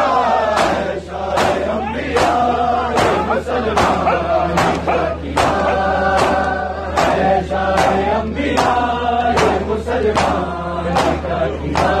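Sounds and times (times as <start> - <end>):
men chanting in unison: 0.0 - 12.0
hands slapping chests: 3.8 - 7.2.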